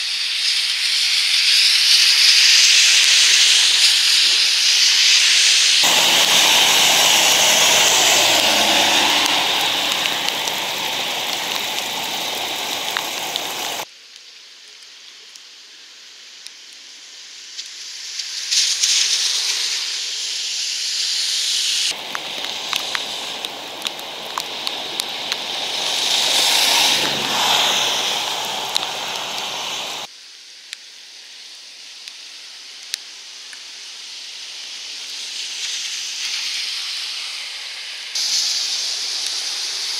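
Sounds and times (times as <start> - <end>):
water rushing from manhole: 0.0 - 13.9, 21.2 - 30.1, 34.6 - 39.9
rain: 0.0 - 39.9.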